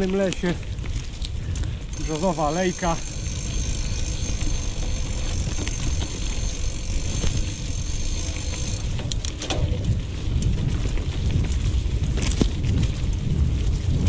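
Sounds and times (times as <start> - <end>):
bike tyres rumbling on path: 0.0 - 14.0
faint high whine: 1.9 - 8.9.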